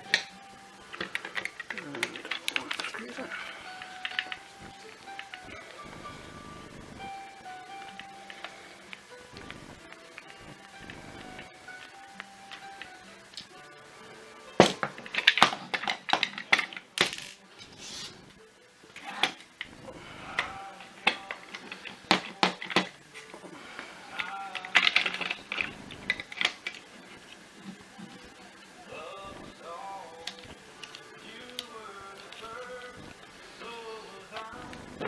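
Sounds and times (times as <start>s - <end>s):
plastic parts clicking and clattering: 0.0s - 5.5s, 14.6s - 17.4s, 20.4s - 23.5s, 24.2s - 28.2s.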